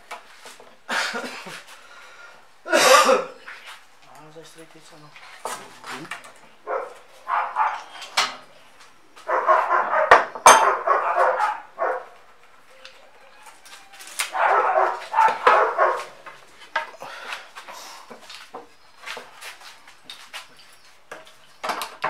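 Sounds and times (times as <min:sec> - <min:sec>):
dog barking: 0:06.6 - 0:08.0, 0:09.3 - 0:12.2, 0:14.3 - 0:16.2.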